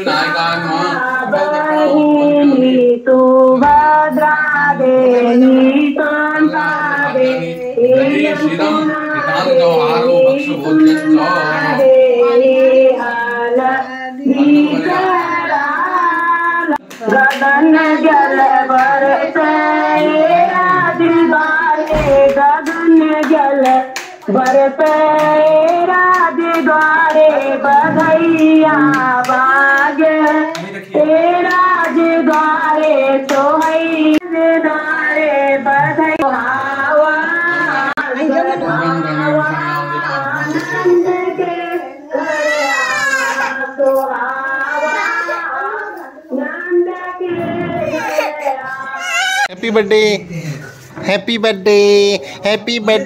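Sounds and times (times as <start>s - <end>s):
woman singing over loudspeaker: 0.7s - 49.4s
low thump: 21.9s - 22.4s.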